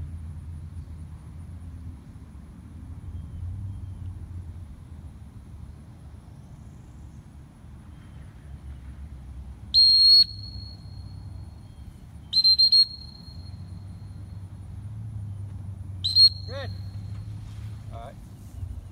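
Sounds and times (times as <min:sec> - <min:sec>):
shrill whistle blasts: 0:09.7 - 0:11.3, 0:12.2 - 0:13.8, 0:16.0 - 0:17.1.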